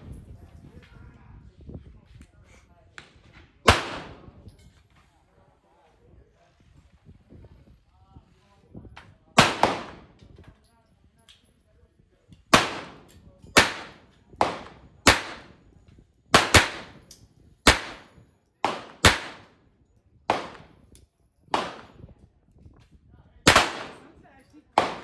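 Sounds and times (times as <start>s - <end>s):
pistol shots with short echo: 3.6s - 4.4s, 9.4s - 10.2s, 12.5s - 15.6s, 16.3s - 19.6s, 20.3s - 20.8s, 21.5s - 22.0s, 23.5s - 25.0s.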